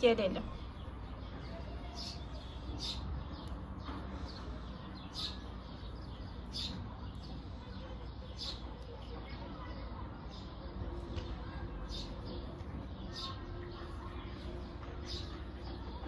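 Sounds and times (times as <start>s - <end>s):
high bird chirps: 0.6s - 8.8s.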